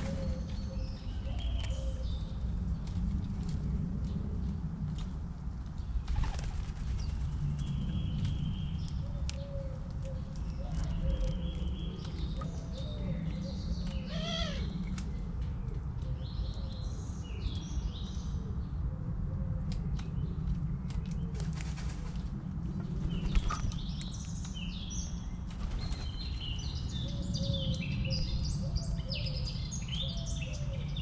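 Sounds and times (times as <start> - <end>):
doves cooing: 0.0 - 2.6, 9.0 - 14.8
steady low rumble: 0.0 - 27.1
small birds chirping: 4.0 - 18.8, 22.7 - 31.0.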